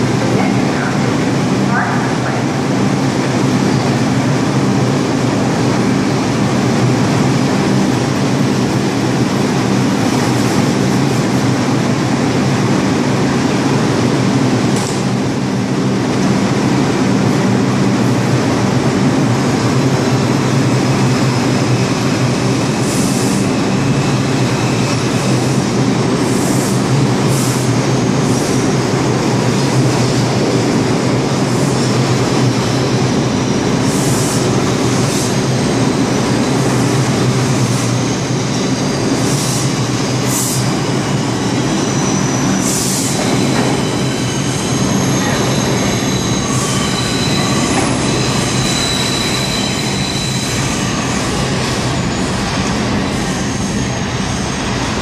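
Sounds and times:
subway train wheels on rails: 0.0s - 55.0s
wheel squeal: 40.8s - 55.0s.

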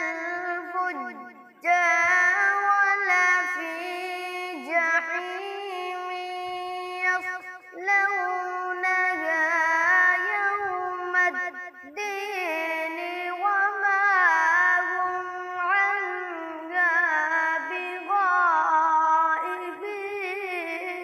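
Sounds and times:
boy reciting melodically: 0.0s - 21.0s.

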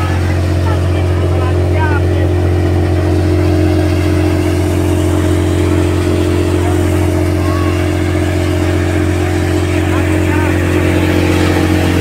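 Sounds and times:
threshing drum and blower: 0.0s - 12.0s
tractor engine drone: 0.0s - 12.0s.

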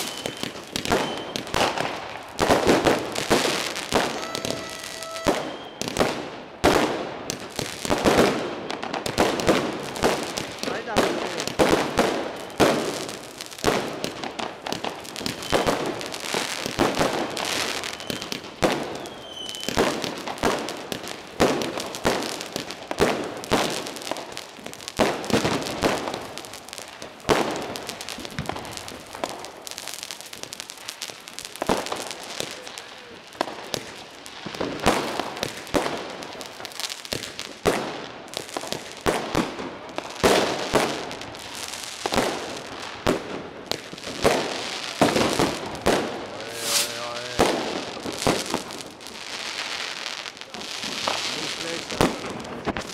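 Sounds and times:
firework whistle: 0.0s - 6.3s, 12.4s - 12.9s, 15.2s - 16.0s, 17.0s - 20.0s, 45.9s - 47.6s
fireworks bangs and crackling: 0.0s - 52.9s.

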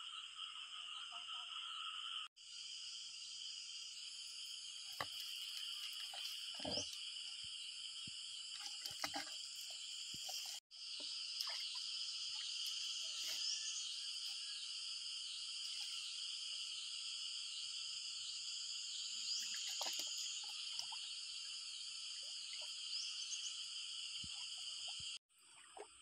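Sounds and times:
insects chirping: 0.0s - 26.0s
frogs calling: 4.9s - 7.7s.

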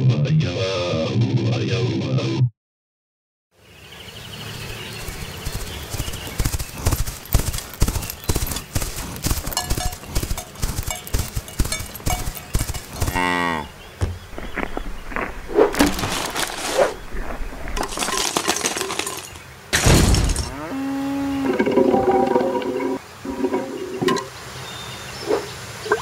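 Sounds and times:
faint outdoor ambience: 3.5s - 26.0s
hoofbeats clip-clopping: 5.1s - 13.4s.

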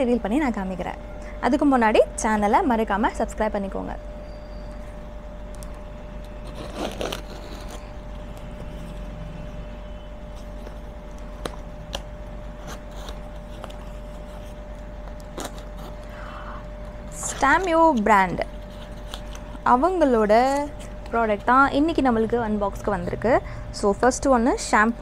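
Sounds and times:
faint steady hum: 0.0s - 25.0s
packaging rustling: 10.3s - 16.1s, 16.8s - 19.7s.

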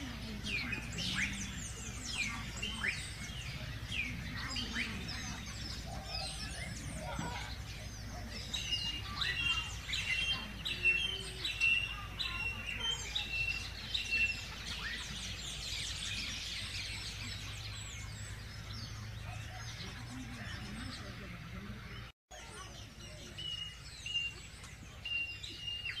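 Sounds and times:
mixed bird chirping: 0.0s - 26.0s
bird whistling phrase: 0.5s - 7.6s, 8.4s - 16.8s.

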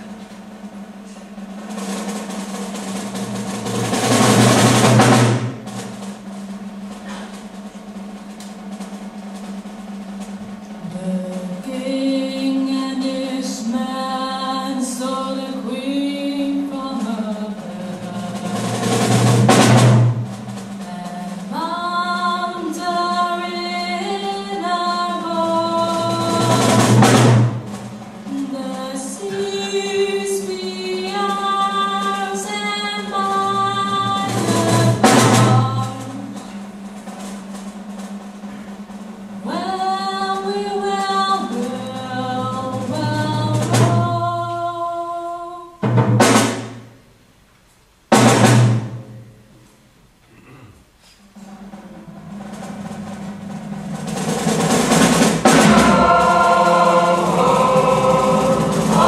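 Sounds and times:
drum roll: 0.0s - 49.7s, 51.2s - 59.0s
orchestral music with singing: 10.2s - 19.8s, 20.6s - 37.2s, 54.8s - 59.0s.

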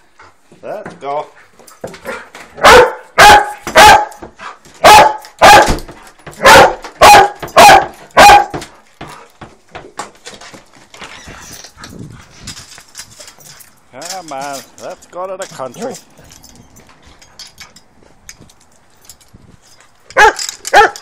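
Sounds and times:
dog barking loudly: 2.6s - 4.2s, 4.8s - 5.8s, 6.4s - 8.6s, 20.2s - 21.0s.

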